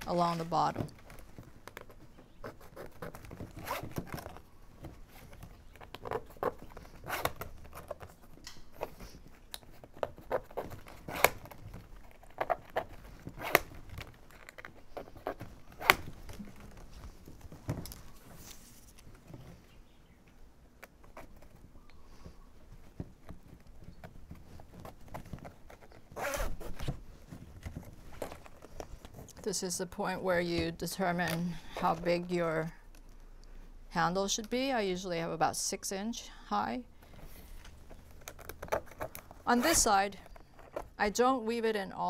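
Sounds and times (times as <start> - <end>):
plastic strap scraping and rustling: 0.0 - 19.8, 20.7 - 32.2, 37.0 - 41.0
sharp plastic clicks and snaps: 8.4 - 8.7.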